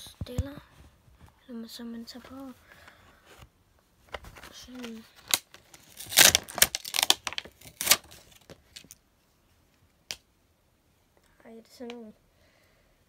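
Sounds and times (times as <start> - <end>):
packaging crinkling: 4.1 - 9.0.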